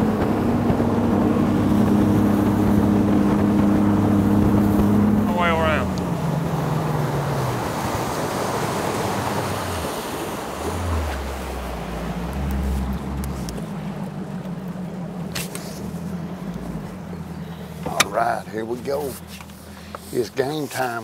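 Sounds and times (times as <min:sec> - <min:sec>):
wind and water rushing: 0:00.0 - 0:14.2
outboard motor running: 0:00.0 - 0:21.0.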